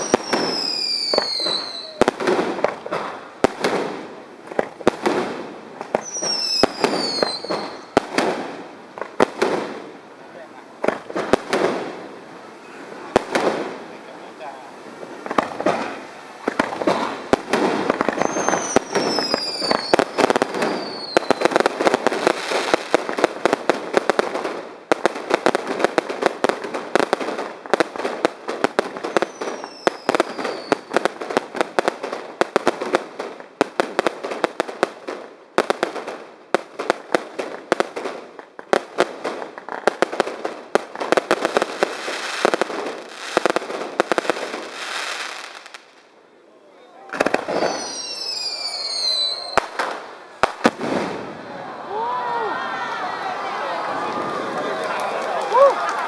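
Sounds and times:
falling firework whistles: 0:00.0 - 0:02.2, 0:05.9 - 0:08.0, 0:15.2 - 0:21.6, 0:29.0 - 0:31.0, 0:47.2 - 0:50.0
fireworks bangs and crackling: 0:00.0 - 0:46.2, 0:47.0 - 0:52.5, 0:53.2 - 0:56.0.

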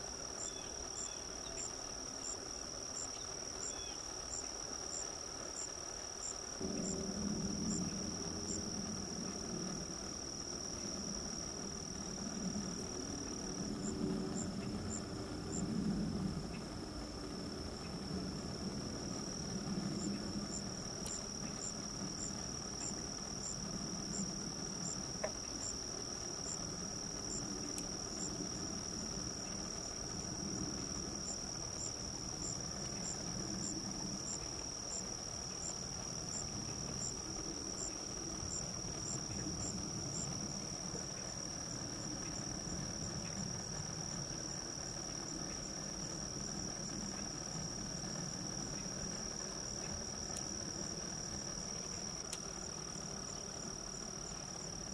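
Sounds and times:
insect chirping: 0:00.0 - 0:54.9
insects buzzing: 0:00.0 - 0:54.9
low rumble: 0:06.6 - 0:25.2.

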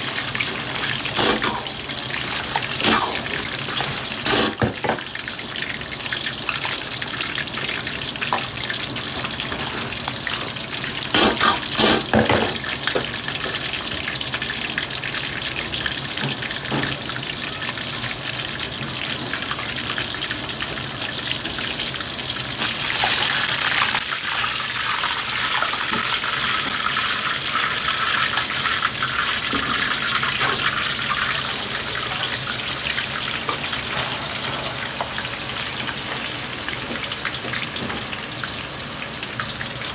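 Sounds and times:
food deep-frying in oil: 0:00.0 - 0:39.9.

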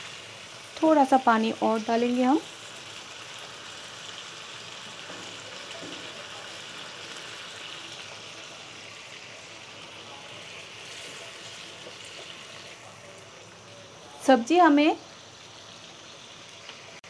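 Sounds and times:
vegetables sizzling in a pan: 0:00.0 - 0:17.0
wooden spatula stirring: 0:10.4 - 0:12.8.

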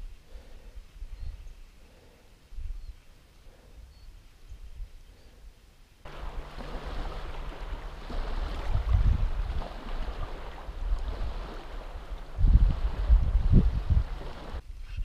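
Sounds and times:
small waves lapping on shore: 0:06.1 - 0:14.6
wind buffeting microphone: 0:06.1 - 0:15.0.

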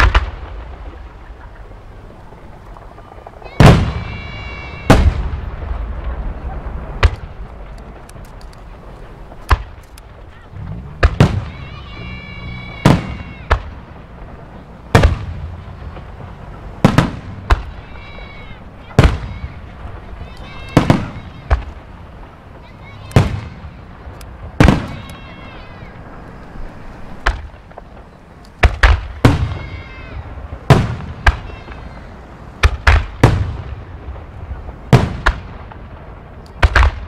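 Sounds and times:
firework bangs with rumbling echo: 0:00.0 - 0:37.0.

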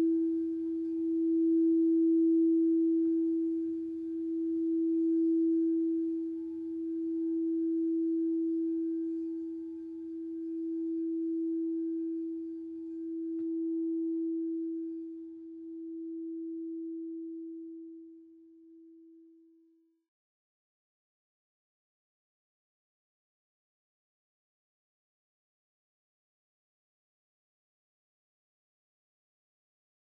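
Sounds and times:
singing bowl ringing: 0:00.0 - 0:19.0.

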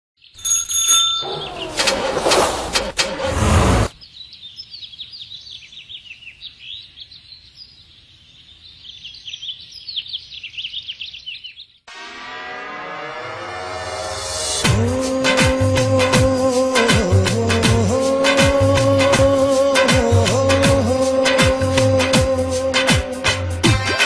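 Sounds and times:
small birds chirping: 0:03.9 - 0:11.9.

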